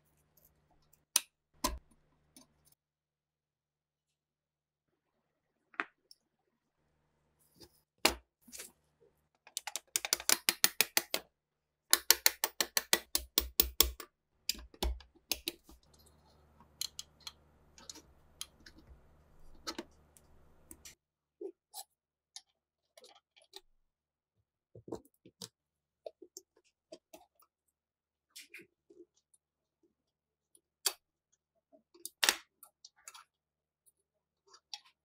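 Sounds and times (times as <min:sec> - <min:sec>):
screwdriver clicking and tapping: 0:09.5 - 0:11.2, 0:11.9 - 0:15.7.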